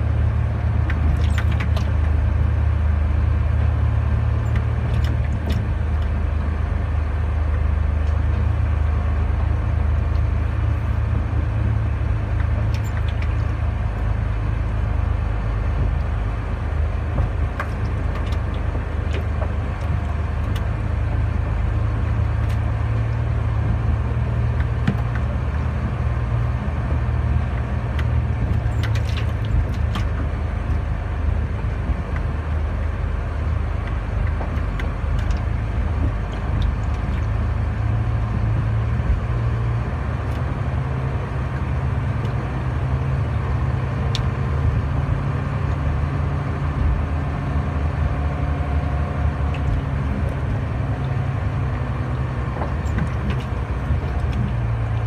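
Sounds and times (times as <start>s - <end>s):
diesel truck engine droning: 0.0s - 55.0s
faint clicks and rattles: 16.8s - 30.9s, 33.4s - 39.2s, 49.3s - 55.0s.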